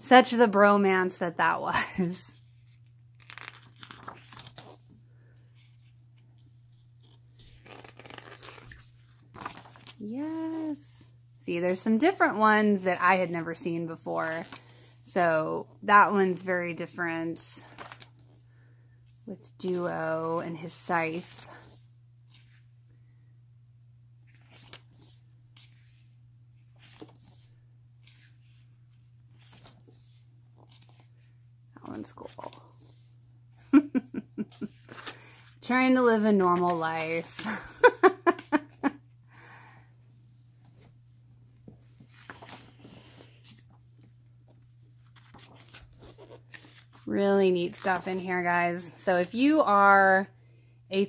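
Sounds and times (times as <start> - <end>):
book pages rustling: 2.5 - 10.8, 14.3 - 14.8, 17.7 - 18.5, 21.6 - 22.8, 24.2 - 33.2, 34.6 - 35.6, 41.6 - 48.6
steady low hum: 8.8 - 49.3.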